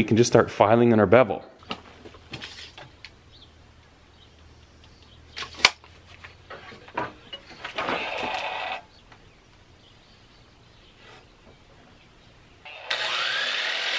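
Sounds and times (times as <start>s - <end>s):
miter saw cutting wood: 7.8s - 8.8s, 12.7s - 13.9s.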